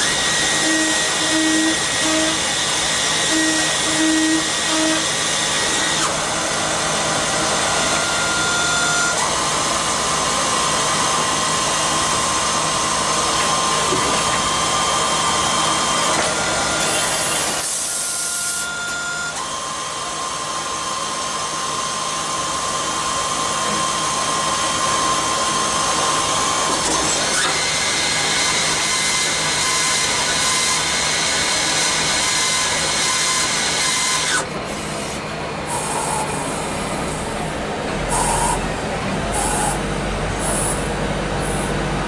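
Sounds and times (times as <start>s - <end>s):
lathe machine whine: 0.0s - 42.0s
short high squeals: 35.7s - 37.4s, 38.1s - 38.7s, 39.3s - 39.8s.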